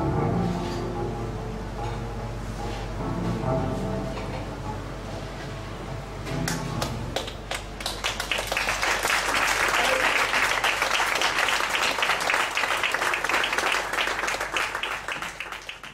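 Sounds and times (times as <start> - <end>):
audience applauding: 6.5 - 15.9.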